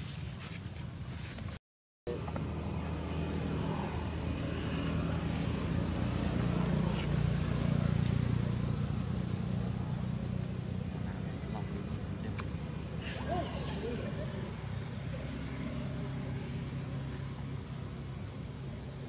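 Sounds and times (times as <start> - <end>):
motor vehicle rumble: 2.1 - 19.0.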